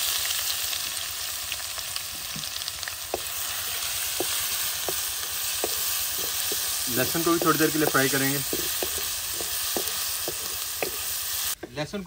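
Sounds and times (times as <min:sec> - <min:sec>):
garlic and spices sizzling in oil: 0:00.0 - 0:11.8
oil popping: 0:01.5 - 0:11.6.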